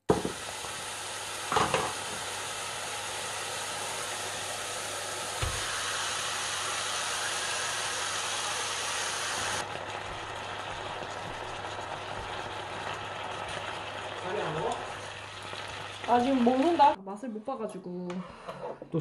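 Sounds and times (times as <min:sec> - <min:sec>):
food sizzling in a hot pan: 0:00.1 - 0:17.0
knock: 0:05.4 - 0:05.7
soft thump: 0:05.4 - 0:05.7.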